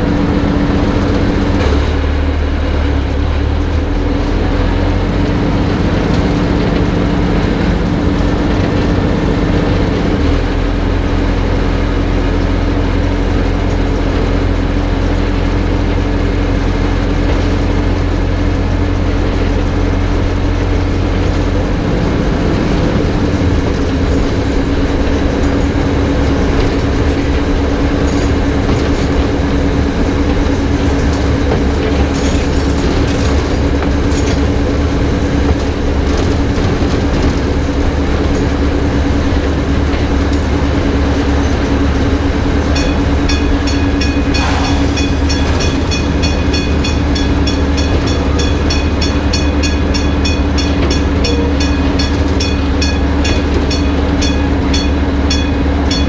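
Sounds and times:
diesel locomotive engine drone: 0.0s - 56.0s
clicks from rail joints: 23.6s - 56.0s
electric warning bell ringing: 41.3s - 56.0s
brief hiss: 44.3s - 45.2s.

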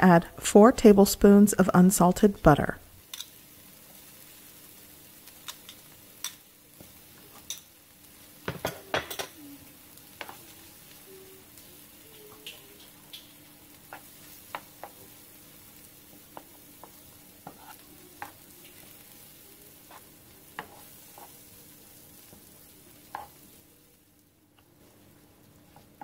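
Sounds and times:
vegetables sizzling in a frying pan: 2.8s - 26.0s
wooden spoon scraping a pan: 16.1s - 18.4s, 19.8s - 21.6s.

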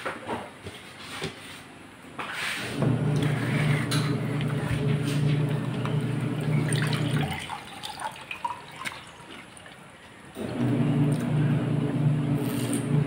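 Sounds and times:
washing machine motor humming: 2.8s - 13.0s.

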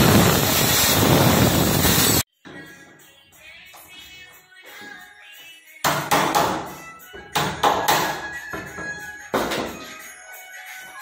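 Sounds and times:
background music: 2.4s - 11.0s.

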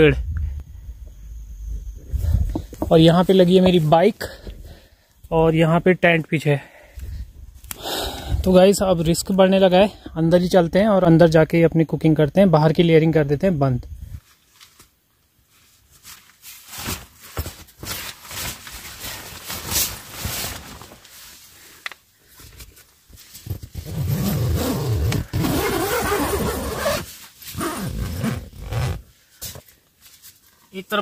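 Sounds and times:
nylon tent fabric rustling: 14.2s - 21.7s, 22.4s - 30.9s
tent zipper being pulled: 23.4s - 29.1s.

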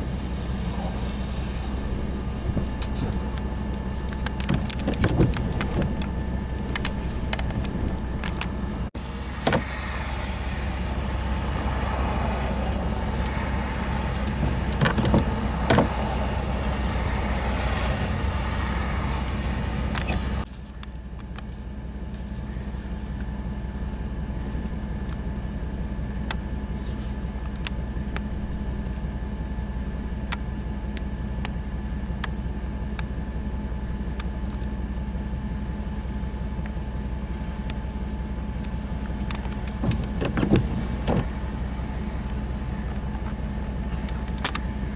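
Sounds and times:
wind noise: 0.0s - 9.7s
vehicle engine rumble: 0.0s - 44.9s.

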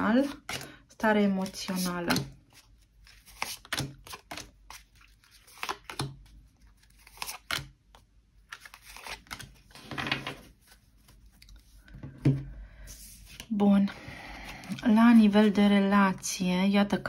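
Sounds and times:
cards sliding together: 1.4s - 6.1s, 6.8s - 7.7s, 8.5s - 9.8s, 12.9s - 13.5s.

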